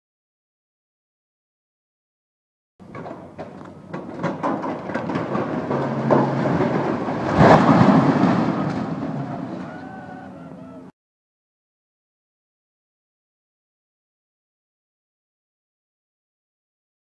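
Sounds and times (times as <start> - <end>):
rumble: 2.8 - 9.9
tower crashing down: 2.8 - 10.3
diesel engines humming: 2.8 - 10.9
steel structure cracking and snapping: 2.9 - 9.8.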